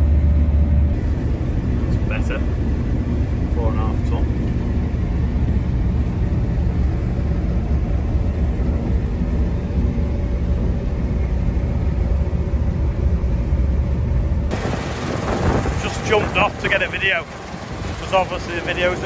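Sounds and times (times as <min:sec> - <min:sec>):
combine harvester drone: 0:00.0 - 0:19.0
wind noise: 0:14.5 - 0:19.0.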